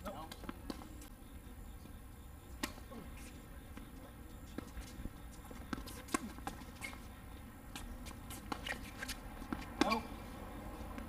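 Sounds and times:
players' footsteps: 0:02.6 - 0:11.0
tennis ball knocks: 0:09.5 - 0:10.1.

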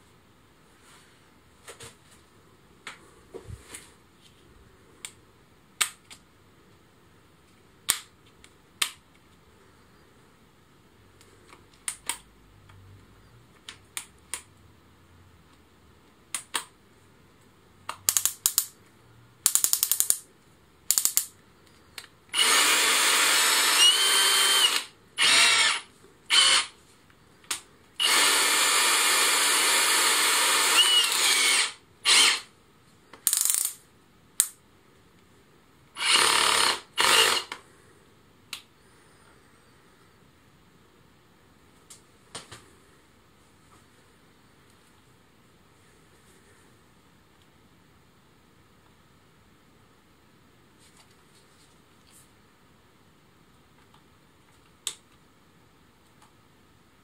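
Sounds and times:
drill motor whirring: 0:22.4 - 0:26.8, 0:28.0 - 0:32.5, 0:36.0 - 0:37.6.

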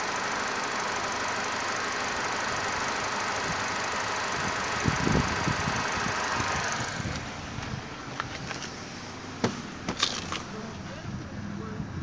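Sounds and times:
car engine idling: 0:00.0 - 0:11.8.

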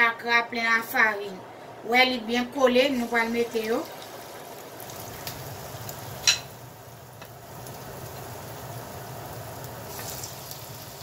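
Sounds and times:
fritter sizzling in hot oil: 0:02.9 - 0:11.0.

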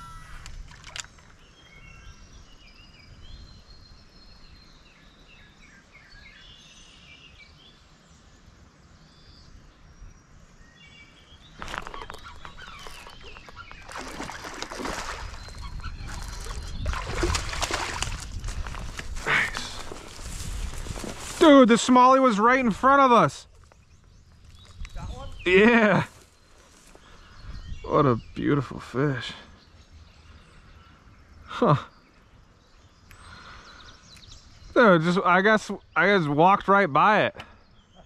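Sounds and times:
birds chirping: 0:00.0 - 0:38.0
fish splashing at water's edge: 0:11.6 - 0:18.6.

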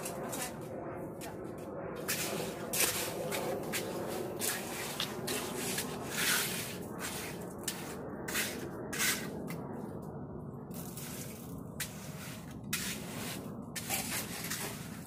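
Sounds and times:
trowel scraping wet concrete: 0:02.0 - 0:09.3, 0:10.8 - 0:15.0.

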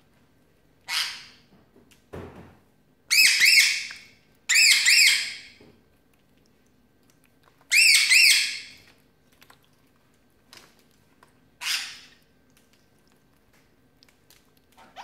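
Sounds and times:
cockatiel whistling chirps: 0:07.7 - 0:08.6.

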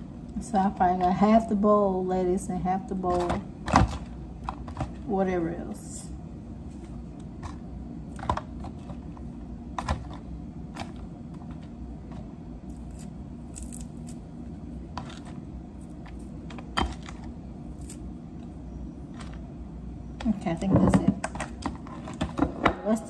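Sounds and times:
low room hum: 0:00.0 - 0:23.0
lettuce leaves snapping: 0:12.7 - 0:14.2.

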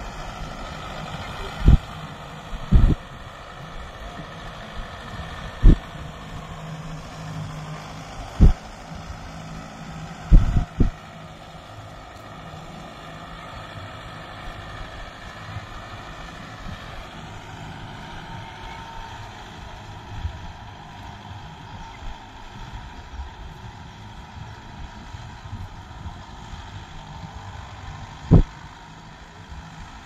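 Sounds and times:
tractor diesel engine running: 0:00.0 - 0:30.0
wind noise: 0:01.3 - 0:01.9, 0:02.5 - 0:03.1, 0:05.5 - 0:05.9, 0:10.3 - 0:11.0, 0:28.3 - 0:28.6.

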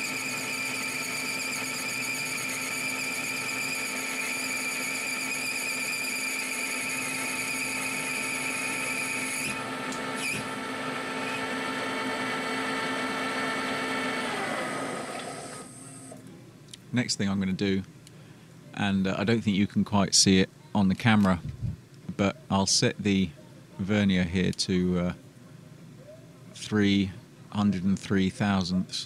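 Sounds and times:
lathe whining: 0:00.0 - 0:16.2
tool cutting metal bar hiss: 0:05.1 - 0:09.6, 0:10.2 - 0:10.5.

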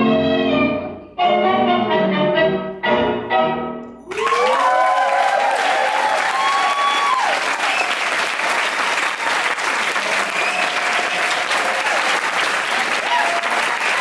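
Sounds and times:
audience applauding: 0:04.1 - 0:14.0
people cheering: 0:04.1 - 0:14.0.

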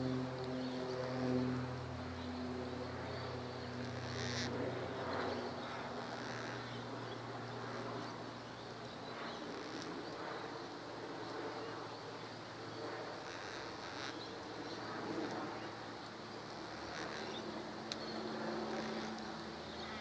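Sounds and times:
low steady hum: 0:00.0 - 0:20.0
cockatoos raspy calls: 0:03.9 - 0:04.5, 0:05.6 - 0:06.8, 0:16.4 - 0:17.4.

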